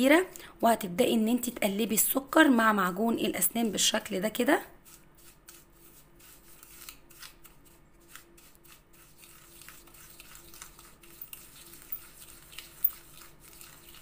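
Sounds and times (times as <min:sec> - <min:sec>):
spoon scraping sugar in bowl: 0:03.8 - 0:14.0.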